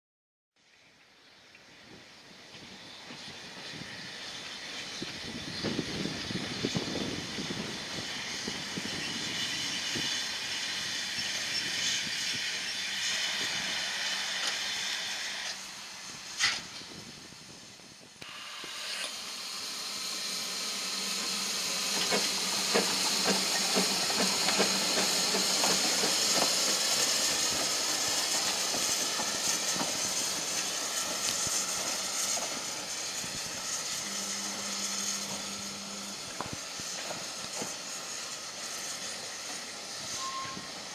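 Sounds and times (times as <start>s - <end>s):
steam locomotive hissing: 1.7s - 40.9s.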